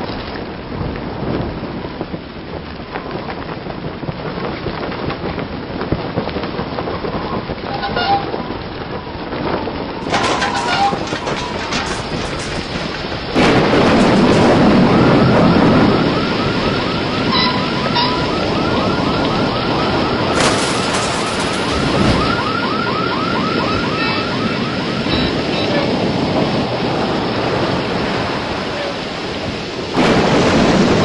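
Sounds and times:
wind and rain: 0.0s - 31.0s.

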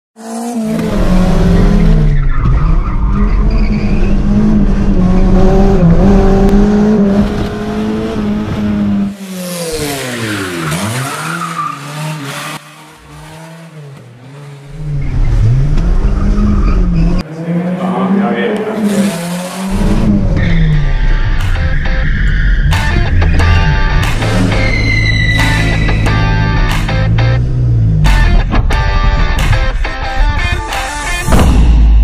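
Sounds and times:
tyre squeal: 1.8s - 4.2s, 15.0s - 17.2s, 24.2s - 26.4s
car engine revving hard: 3.9s - 11.2s, 11.8s - 20.4s.

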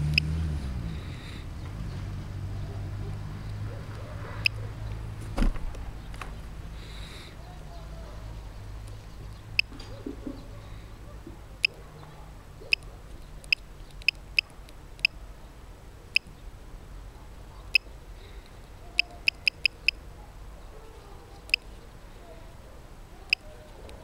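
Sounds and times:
small bird pipping: 19.0s - 20.0s.

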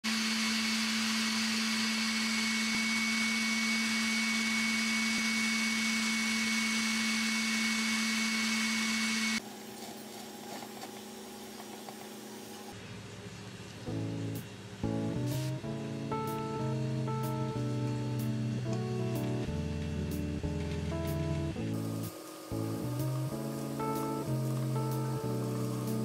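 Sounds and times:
stand mixer whipping: 0.1s - 9.4s.

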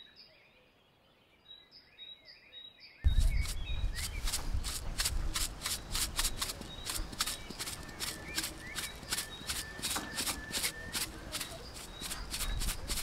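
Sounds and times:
salt shaker rattling: 3.2s - 13.0s.

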